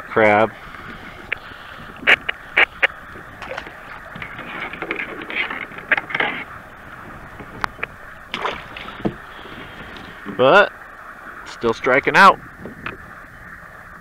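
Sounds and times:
scraping and rustling: 0.8s - 10.4s.

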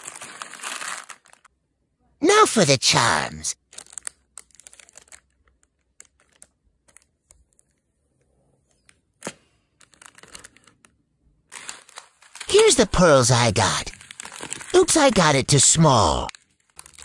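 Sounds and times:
plastic packets clicking: 3.7s - 7.1s, 9.2s - 12.5s, 14.0s - 14.7s, 16.3s - 17.0s.

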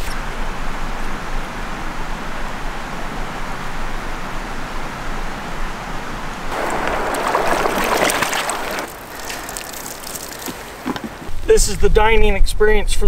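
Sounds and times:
river water splashing and gurgling: 6.5s - 11.3s.

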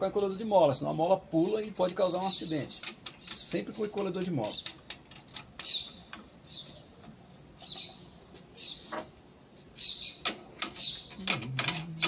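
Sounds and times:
sharp metal clicks: 1.4s - 6.3s, 10.0s - 12.0s.

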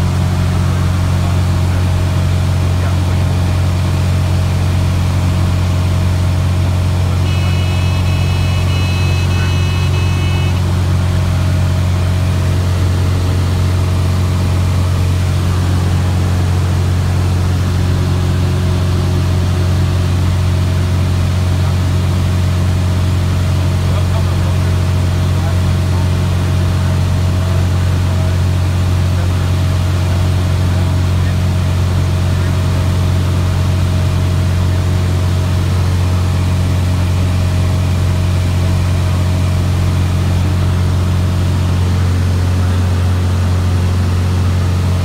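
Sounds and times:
aircraft engine drone: 0.0s - 45.0s
high steady tone: 7.2s - 11.7s.

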